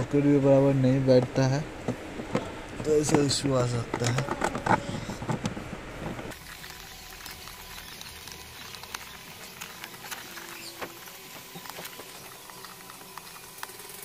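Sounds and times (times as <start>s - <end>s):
steady hiss: 5.7s - 14.0s.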